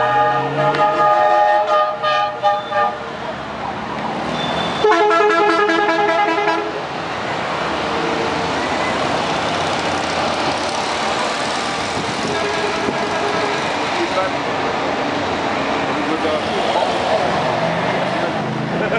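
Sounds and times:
vehicle horn: 0.0 - 3.0, 4.4 - 6.8, 12.2 - 13.6
motorcycle engines passing: 15.7 - 18.9.

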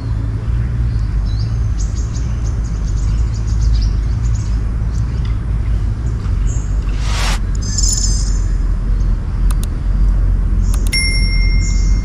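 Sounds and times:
low rumble: 6.6 - 7.7.

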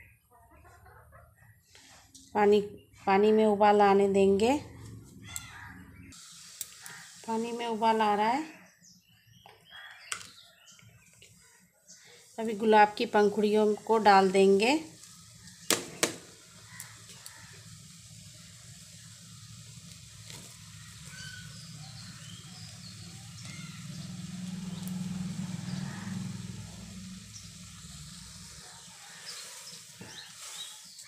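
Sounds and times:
water boiling in a pan: 6.1 - 8.5, 12.0 - 31.0.

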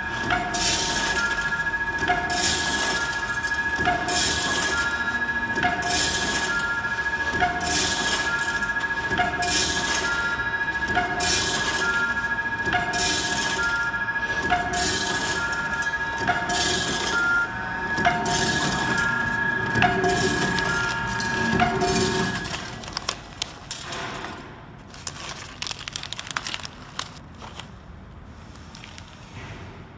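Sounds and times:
machine whine and blips: 0.0 - 23.3
plastic pouches crinkling: 22.3 - 27.8.

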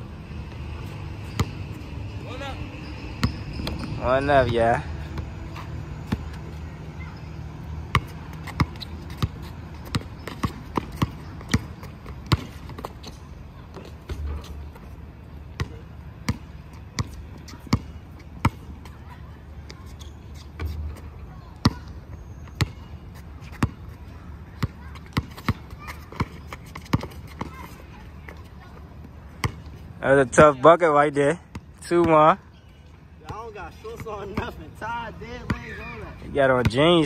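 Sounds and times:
basketball bouncing on hard court: 1.3 - 1.7, 3.2 - 4.6, 7.9 - 13.0, 15.6 - 18.7, 23.5 - 23.8, 24.6 - 27.8, 29.4 - 29.7.

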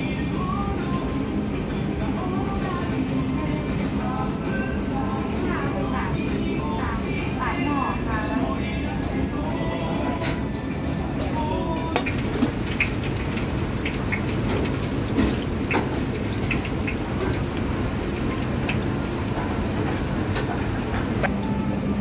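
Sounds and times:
hot oil sizzling: 12.0 - 21.3
oil popping and crackling: 12.0 - 21.3.

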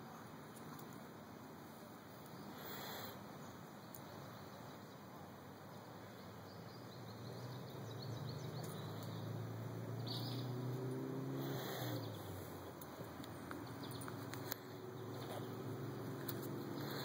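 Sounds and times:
outdoor background hiss: 0.0 - 17.0
faint bird chirps: 2.2 - 12.7.

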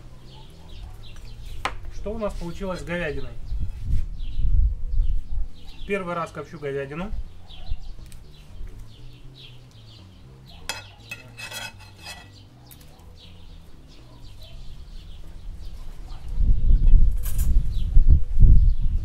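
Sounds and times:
small birds chirping: 0.0 - 19.0
metal scraping and clinking: 10.6 - 12.4.

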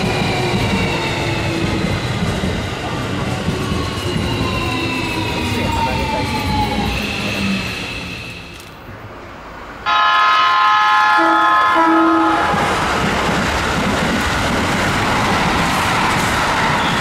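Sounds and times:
train rumbling and wheel clatter: 0.0 - 17.0
train horn long blast: 9.9 - 12.8.

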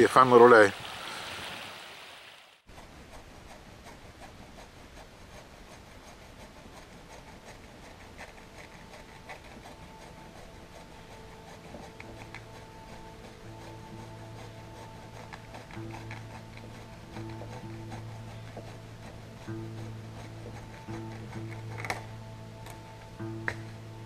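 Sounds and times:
rustling with small crackles: 2.7 - 24.0
soft background music: 7.9 - 24.0.

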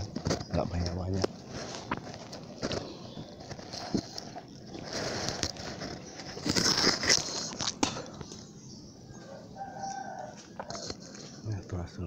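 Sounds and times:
leaves and twigs rustling: 0.0 - 8.5.

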